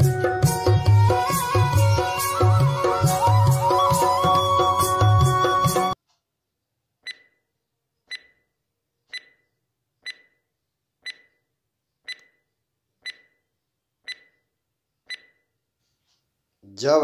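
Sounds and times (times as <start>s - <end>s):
clock ticks with ring: 7.0s - 7.4s, 8.1s - 8.4s, 9.1s - 9.4s, 10.0s - 10.4s, 11.0s - 11.4s, 12.1s - 12.4s, 13.0s - 13.4s, 14.1s - 14.4s, 15.1s - 15.4s.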